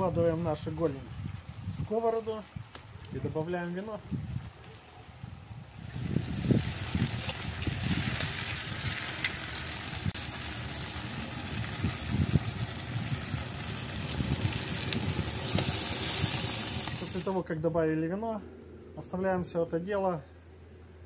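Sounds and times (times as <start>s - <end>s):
sharp crackles: 0.0s - 17.4s
chicken sizzling in pan: 5.6s - 17.4s
wine pouring into pan: 5.8s - 17.3s.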